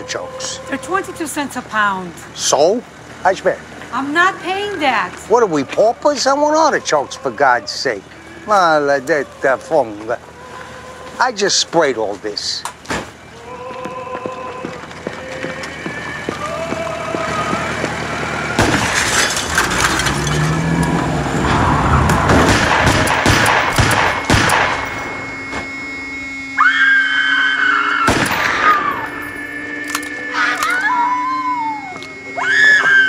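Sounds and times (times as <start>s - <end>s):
pistol shots: 22.3s - 25.0s, 28.1s - 29.0s
woman screaming: 26.6s - 28.1s, 30.3s - 33.0s.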